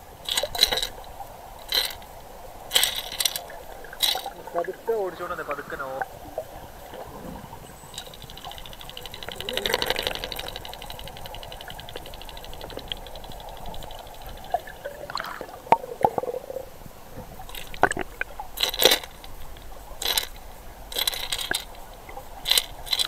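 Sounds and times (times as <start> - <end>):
muffled underwater water sound: 0.0 - 23.0
water sloshing: 0.0 - 23.0
fast even ticking: 7.8 - 14.8.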